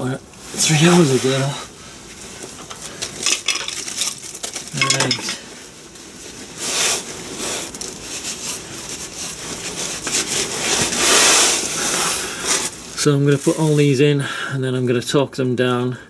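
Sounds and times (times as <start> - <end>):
cloth rag rustling: 0.4 - 14.0
small parts clinking: 3.0 - 5.5.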